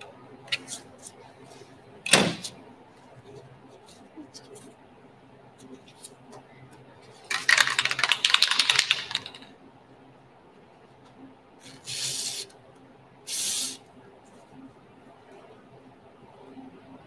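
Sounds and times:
aerosol spray can hissing: 0:11.9 - 0:12.4, 0:13.3 - 0:13.8.

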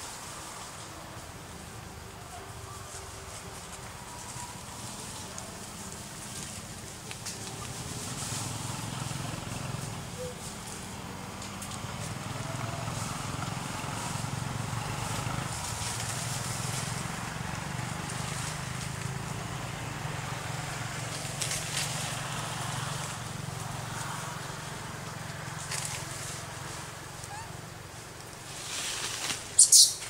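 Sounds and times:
low engine hum: 0:00.0 - 0:30.0.

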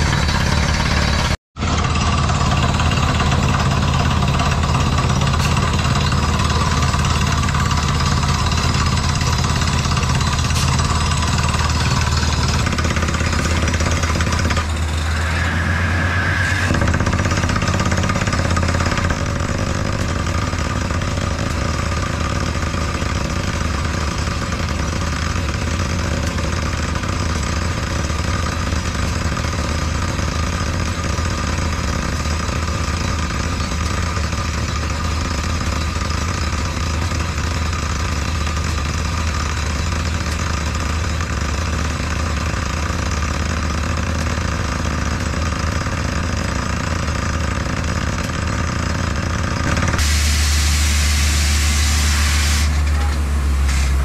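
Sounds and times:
drilling rig engine running: 0:00.0 - 0:54.0
loud rushing hiss: 0:14.7 - 0:18.8, 0:49.9 - 0:54.0.

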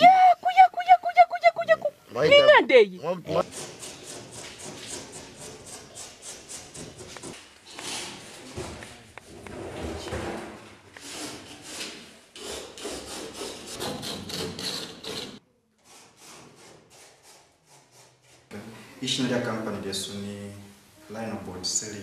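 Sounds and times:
hand tool scraping ceiling board: 0:03.4 - 0:18.5.

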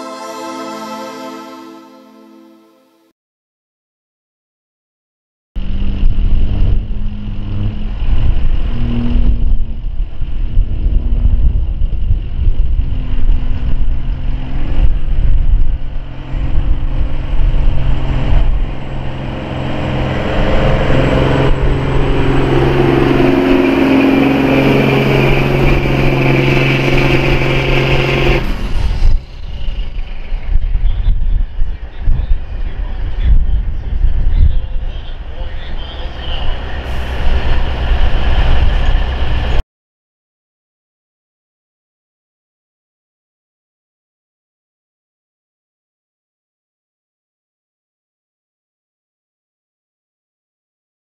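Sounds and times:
diesel truck engine under load: 0:05.6 - 0:31.9, 0:34.8 - 0:39.6.

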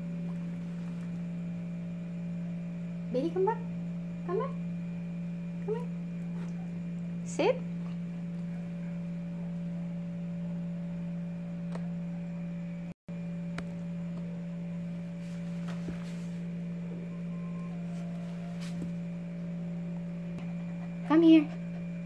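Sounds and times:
steady low hum: 0:00.0 - 0:22.0
faint high tones: 0:16.8 - 0:19.2.

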